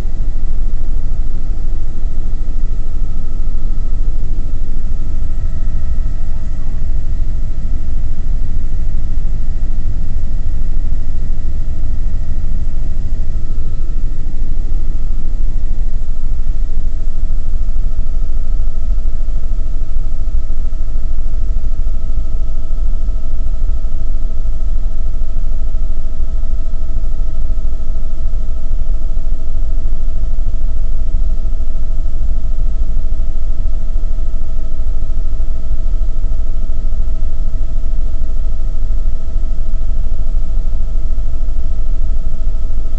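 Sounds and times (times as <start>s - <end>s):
steady whine: 0.0s - 42.9s.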